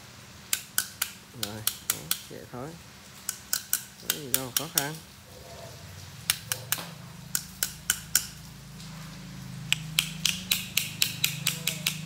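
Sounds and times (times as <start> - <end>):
sharp clicks: 3.3 - 5.0, 9.7 - 12.0
washing-machine motor humming: 4.0 - 12.0.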